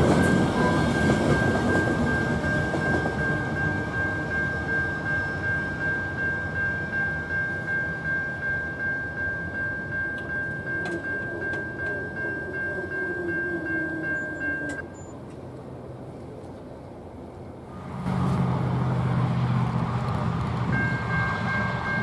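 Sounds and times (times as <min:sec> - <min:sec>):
railroad crossing bell ringing: 0:00.0 - 0:15.2, 0:20.7 - 0:22.0.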